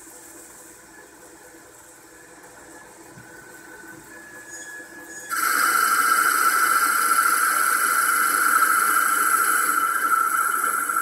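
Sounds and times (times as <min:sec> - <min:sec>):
lathe running with faint tones: 0:00.0 - 0:11.0
high-pitched cutting whine: 0:03.4 - 0:11.0.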